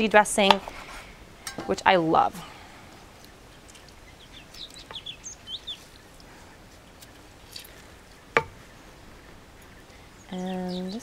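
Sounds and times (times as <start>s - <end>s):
faint songbird chirps: 2.4s - 11.0s.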